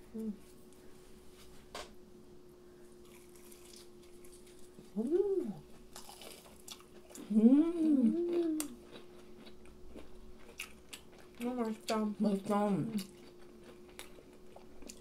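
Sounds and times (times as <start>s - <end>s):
person humming while eating: 0.0s - 0.5s, 4.8s - 5.8s, 7.1s - 9.0s
faint steady hum: 0.0s - 15.0s
soft chewing clicks: 5.7s - 15.0s.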